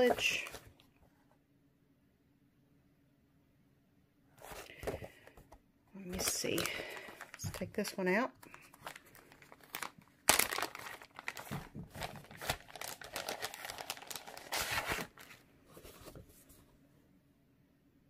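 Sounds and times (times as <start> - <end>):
plastic bag crinkling: 6.1 - 15.4.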